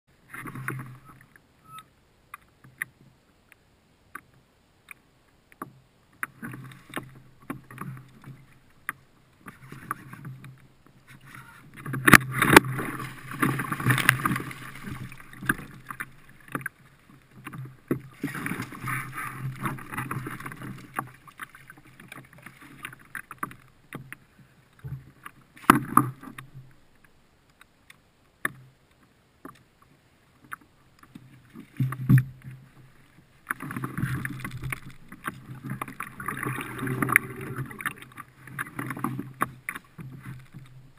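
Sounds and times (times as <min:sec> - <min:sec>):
water sloshing: 0:05.6 - 0:27.0, 0:30.4 - 0:40.9
splashing and rustling: 0:06.2 - 0:26.8, 0:30.4 - 0:40.9.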